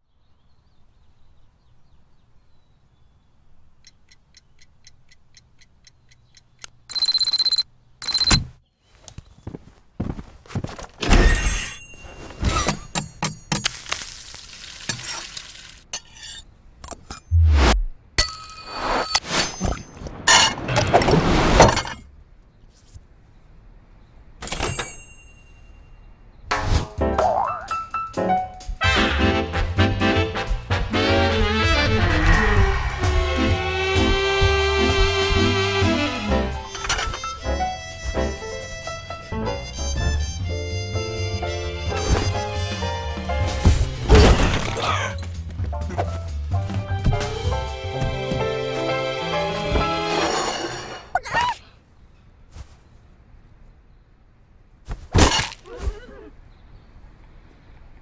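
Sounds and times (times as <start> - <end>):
alarm clock ticking: 3.8 - 8.4
plate clink ringing: 24.5 - 26.0
swing music with horns: 26.8 - 44.1, 45.4 - 50.2.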